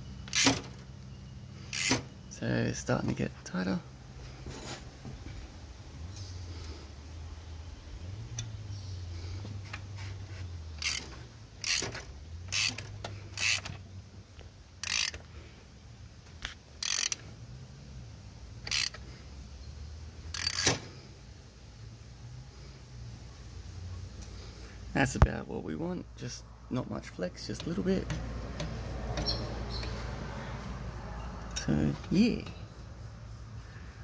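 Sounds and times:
ratchet wrench clicking: 1.7 - 2.0, 10.8 - 13.8, 14.8 - 15.3, 16.8 - 17.2, 18.6 - 19.0, 20.3 - 20.8.

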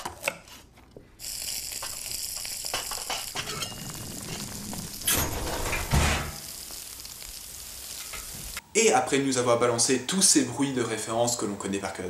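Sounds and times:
kitchen noises: 0.0 - 8.6
asparagus sizzling in a pan: 1.2 - 8.6.

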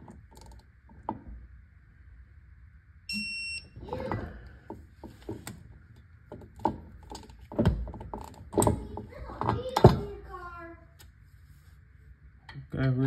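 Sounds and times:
electronic torque wrench beep: 3.1 - 3.8.

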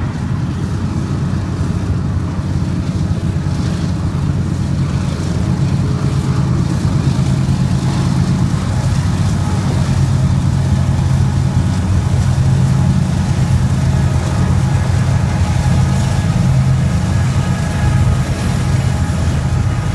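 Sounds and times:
diesel locomotives droning: 0.0 - 19.9
freight cars rolling past: 0.0 - 19.9.

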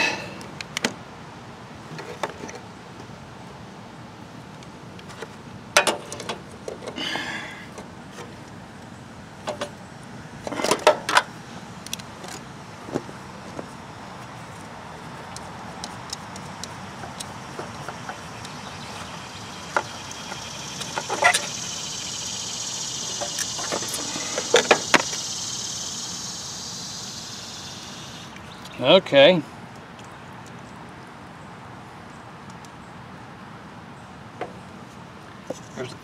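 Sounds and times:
steady hiss: 12.9 - 29.4.

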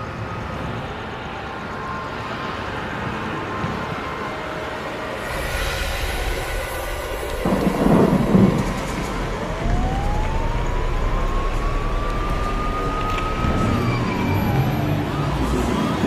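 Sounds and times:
siren wailing: 0.0 - 16.0
loud rush of noise: 2.9 - 16.0
steady low rumble: 5.2 - 15.3.

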